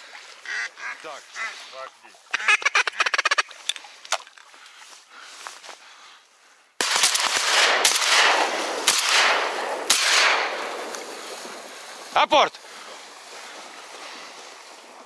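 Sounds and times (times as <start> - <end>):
shotgun shots echoing: 6.8 - 10.9.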